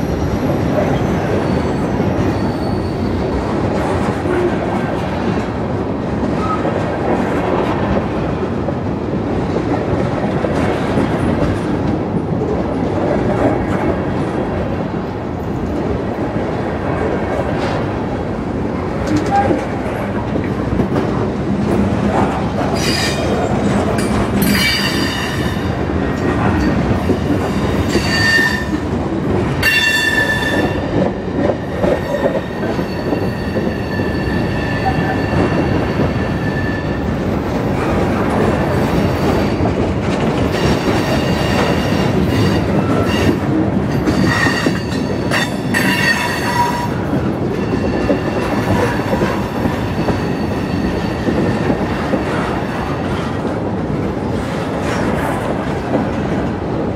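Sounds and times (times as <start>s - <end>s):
train wheels rumbling on rail: 0.0s - 56.9s
metallic wheel squeal: 1.4s - 3.2s.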